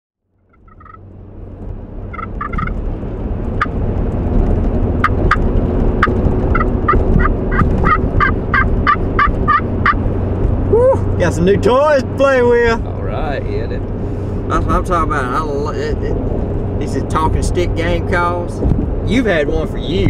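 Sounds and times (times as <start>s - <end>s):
vehicle cab road rumble: 0.2s - 20.0s
turkey call clucks and yelps: 0.5s - 1.0s, 2.2s - 2.7s, 6.6s - 10.0s.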